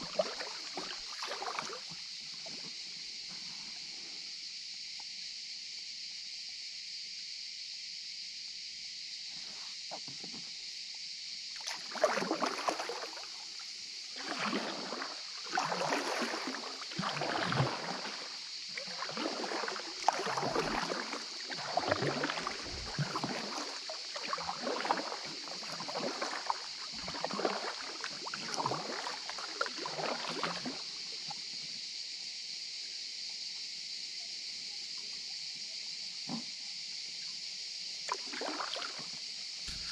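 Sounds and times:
paddle splashing in water: 0:00.0 - 0:03.5, 0:11.5 - 0:31.5, 0:38.0 - 0:39.9
steady high hiss: 0:39.1 - 0:39.9.

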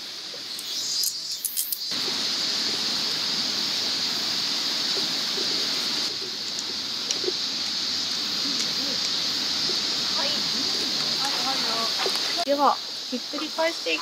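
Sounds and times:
cicadas shrilling: 0:00.0 - 0:14.0
light crackles: 0:00.3 - 0:14.0
river rushing: 0:01.9 - 0:14.0.

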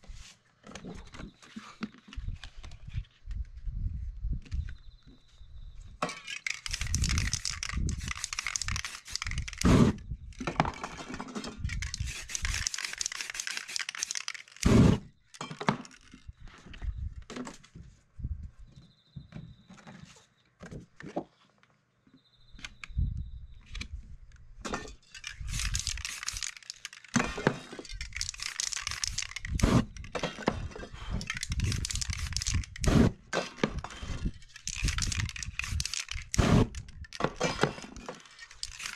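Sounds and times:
spray-paint cans hissing: 0:06.3 - 0:10.0, 0:11.7 - 0:14.9, 0:25.2 - 0:30.2, 0:31.2 - 0:33.1, 0:34.3 - 0:37.7, 0:38.3 - 0:38.9
paper crinkling and tearing: 0:25.4 - 0:30.0, 0:34.3 - 0:38.9.

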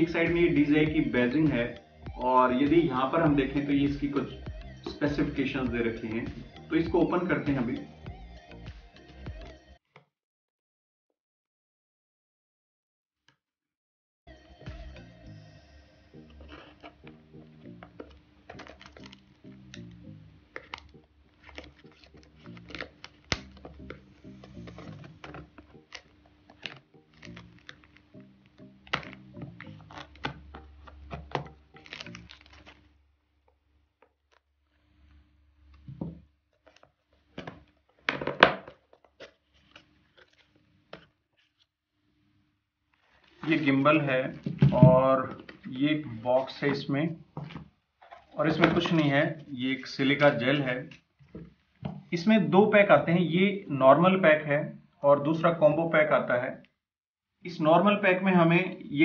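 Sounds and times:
background music with low melody: 0:00.0 - 0:09.9, 0:14.3 - 0:33.2, 0:42.9 - 0:56.6.

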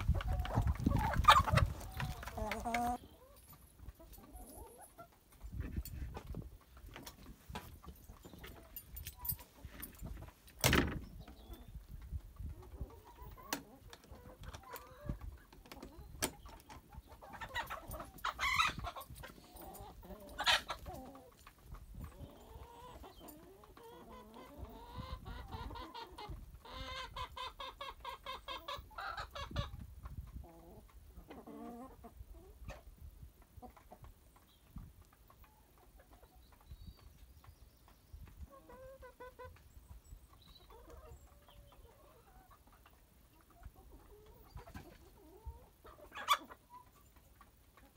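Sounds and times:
chickens clucking: 0:00.0 - 0:47.9
loud chicken calls: 0:17.3 - 0:19.0.

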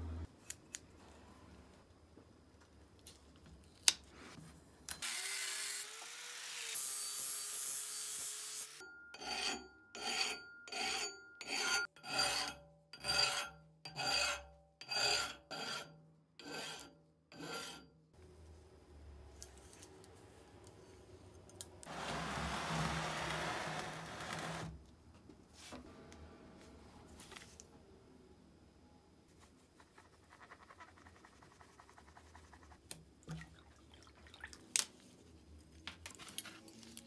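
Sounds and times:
hand file rasping on steel: 0:09.2 - 0:17.9.

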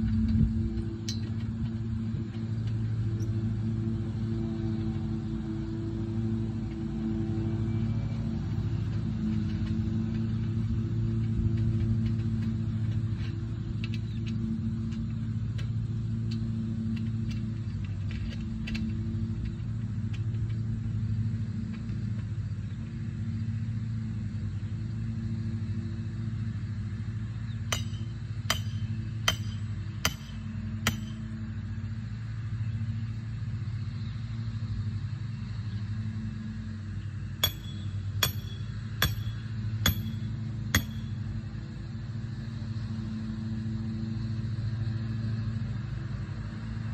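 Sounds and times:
low engine hum: 0:00.0 - 0:46.9
hammer blows on metal: 0:27.7 - 0:31.3, 0:37.4 - 0:41.2.

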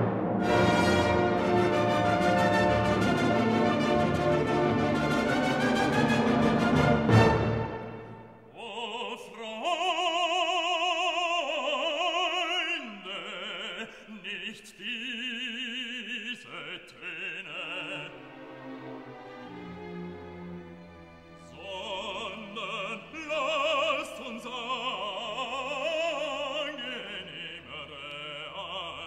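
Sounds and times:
loud orchestral music: 0:00.0 - 0:08.4, 0:17.8 - 0:24.2
operatic voice singing: 0:08.5 - 0:18.5, 0:21.4 - 0:29.0.

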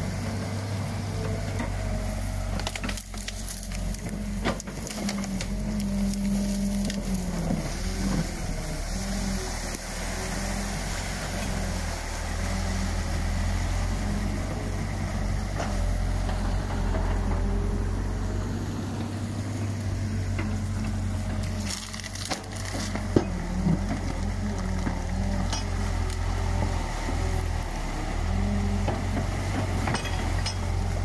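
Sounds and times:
excavator engine running: 0:00.0 - 0:31.0
sticks and branches cracking: 0:01.6 - 0:09.8, 0:20.3 - 0:29.7.

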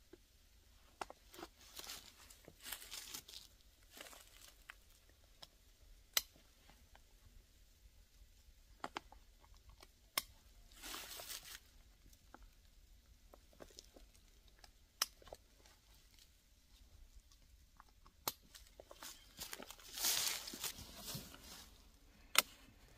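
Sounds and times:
heavy fabric rustling: 0:19.3 - 0:21.9.

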